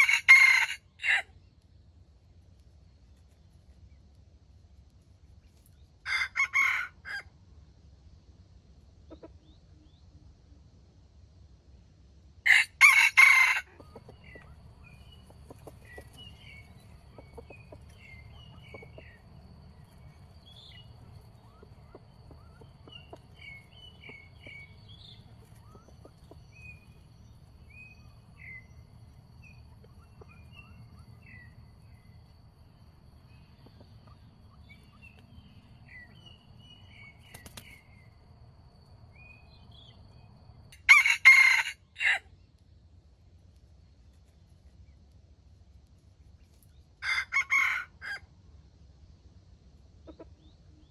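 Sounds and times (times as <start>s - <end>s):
rooster crowing: 0.0s - 1.3s, 6.0s - 7.3s, 12.5s - 14.1s, 40.8s - 42.3s, 47.0s - 48.3s
faint high bird chirps: 13.8s - 42.6s.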